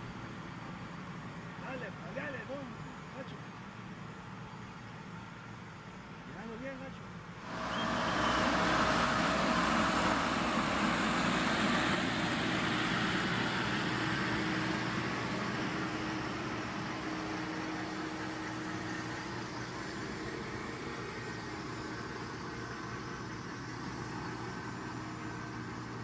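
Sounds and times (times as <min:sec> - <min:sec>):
tractor engine hum: 0:00.0 - 0:26.0
feed mixer augers working: 0:07.4 - 0:26.0.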